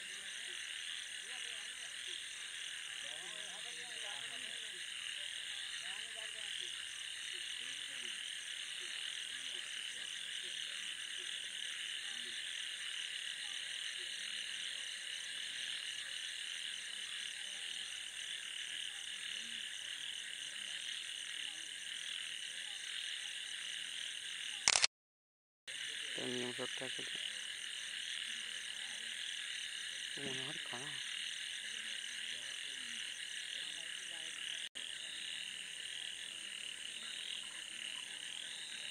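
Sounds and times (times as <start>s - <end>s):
frogs calling: 0.0s - 24.8s, 25.7s - 38.9s
click: 24.7s - 24.9s.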